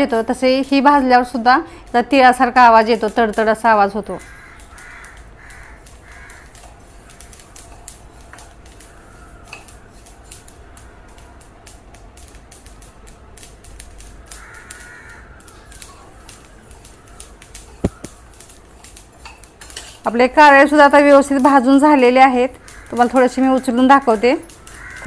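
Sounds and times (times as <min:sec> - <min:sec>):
seeds crackling in a pan: 0:00.0 - 0:25.0
crow cawing: 0:04.2 - 0:06.6, 0:14.3 - 0:15.8, 0:22.6 - 0:23.2, 0:24.6 - 0:25.0.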